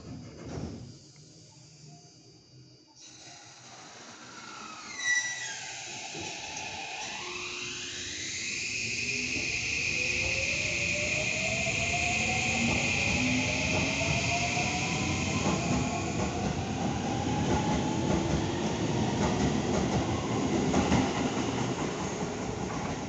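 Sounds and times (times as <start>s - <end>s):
electric train motor whine: 3.4s - 20.7s.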